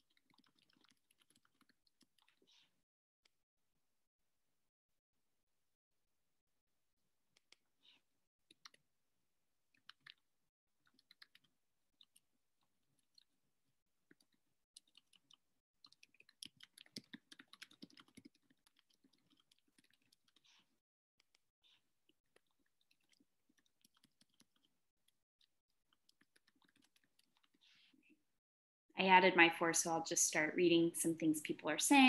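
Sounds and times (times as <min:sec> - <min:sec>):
keyboard typing: 0:00.0 - 0:02.4, 0:10.8 - 0:12.2, 0:14.1 - 0:21.4, 0:22.3 - 0:24.7, 0:25.9 - 0:27.6.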